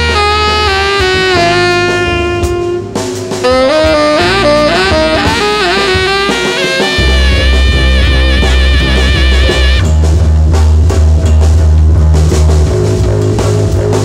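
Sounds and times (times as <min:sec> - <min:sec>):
saxophone: 0:00.0 - 0:10.0
bass guitar: 0:00.0 - 0:14.0
light drums: 0:00.0 - 0:14.0.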